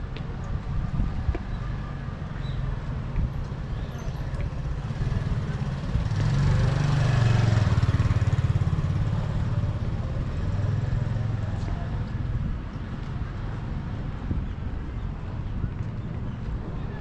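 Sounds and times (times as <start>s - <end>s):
low traffic rumble: 0.0s - 17.0s
vehicle passing close by: 4.7s - 11.6s.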